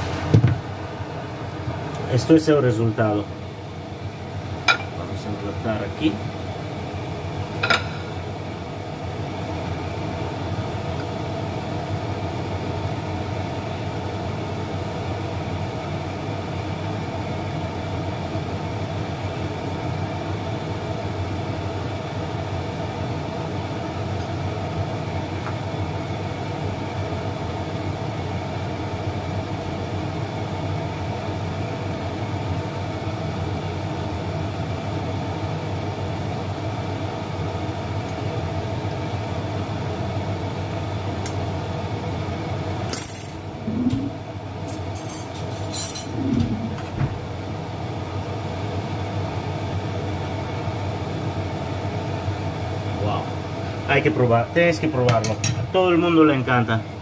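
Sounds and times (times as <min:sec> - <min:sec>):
kitchen fan humming: 0:00.0 - 0:57.0.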